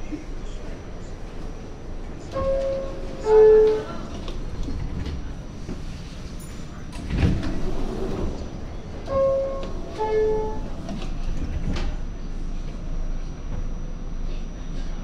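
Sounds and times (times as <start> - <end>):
train rumble: 0.0 - 15.0
two-tone door chime: 9.1 - 10.8.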